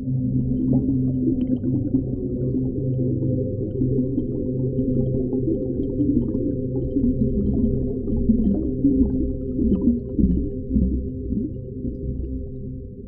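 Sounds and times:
muffled underwater rumble: 0:00.0 - 0:13.0
low drone: 0:06.4 - 0:13.0.

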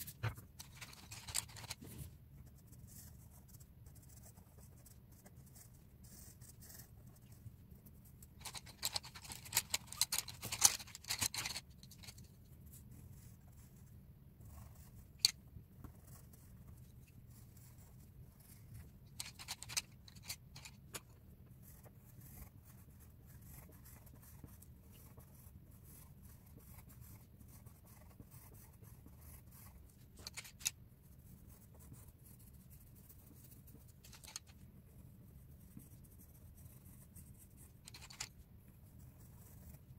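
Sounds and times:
pencil scratching on paper: 0:00.0 - 0:19.7, 0:21.5 - 0:39.9
rustling and tapping: 0:08.4 - 0:12.3, 0:37.8 - 0:38.4.

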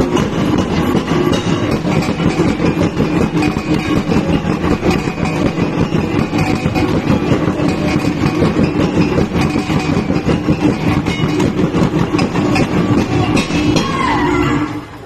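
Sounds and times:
gongs struck rapidly: 0:00.0 - 0:15.0.

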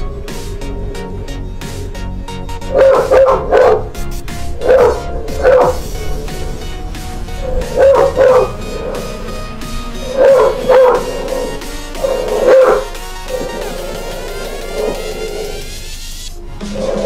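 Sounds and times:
background music: 0:00.0 - 0:17.0
dog barking: 0:02.6 - 0:15.8, 0:16.8 - 0:17.0.

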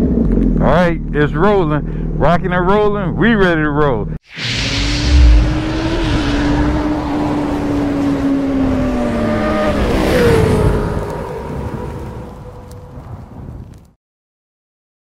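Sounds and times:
loud low boom: 0:04.2 - 0:07.9
motorcycle engine revving: 0:05.0 - 0:12.0.

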